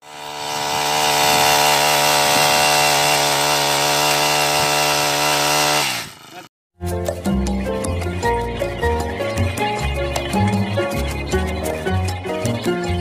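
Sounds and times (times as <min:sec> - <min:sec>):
brush cutter engine running: 0:00.0 - 0:06.5.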